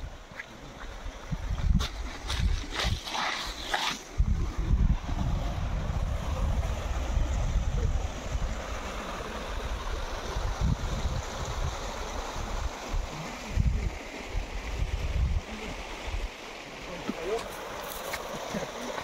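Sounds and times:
stream running over stones: 0:00.0 - 0:19.0
wind buffeting microphone: 0:00.9 - 0:03.1, 0:04.0 - 0:16.3.

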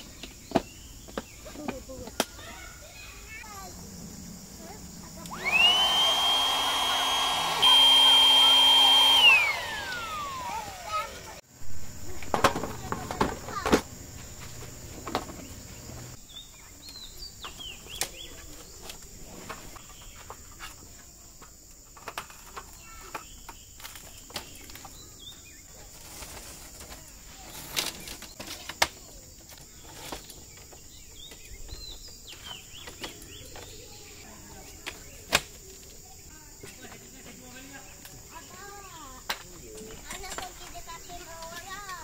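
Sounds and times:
birds chirping: 0:00.0 - 0:20.8, 0:29.1 - 0:35.3
steady high hiss: 0:00.0 - 0:21.0.

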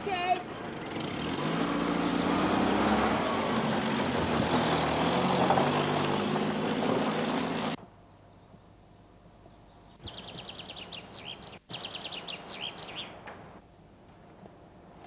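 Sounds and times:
van engine driving off: 0:00.5 - 0:07.8.

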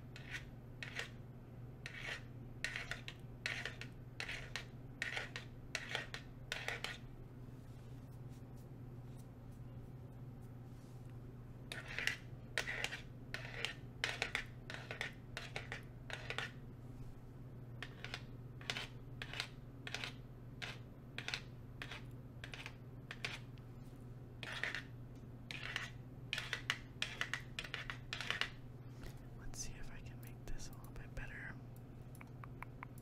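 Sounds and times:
fake fingernails clicking: 0:32.1 - 0:33.0.

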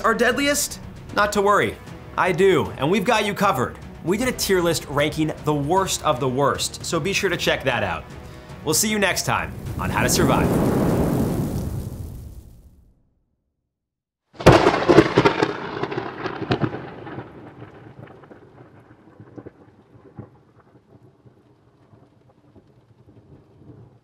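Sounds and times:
music: 0:00.0 - 0:11.2
loud crash with crackling: 0:09.5 - 0:12.9, 0:14.4 - 0:18.2.

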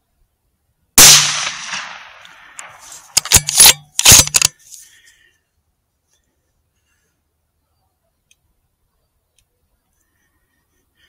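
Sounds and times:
rifle shot: 0:01.0 - 0:04.5
rifle action clacking: 0:01.3 - 0:04.6.

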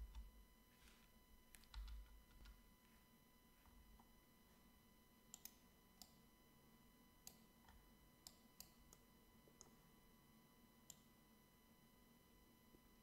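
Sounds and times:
faint electrical hum: 0:00.0 - 0:13.0
computer mouse clicks: 0:01.5 - 0:02.6, 0:05.3 - 0:06.2, 0:07.2 - 0:09.8.

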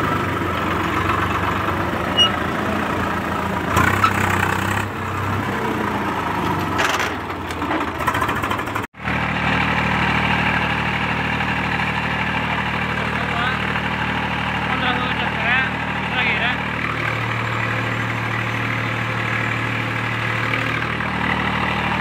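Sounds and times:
tractor diesel engine running: 0:00.0 - 0:22.0.

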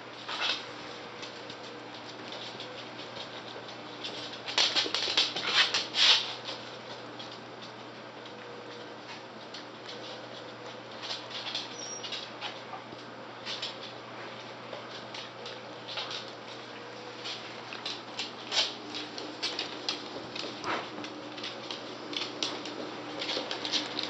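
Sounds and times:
claws clicking on wooden floor: 0:17.2 - 0:24.0.

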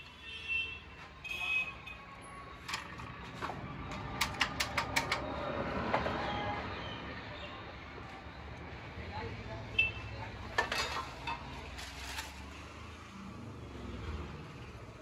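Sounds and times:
sharp clicks and knocks: 0:02.7 - 0:05.4.

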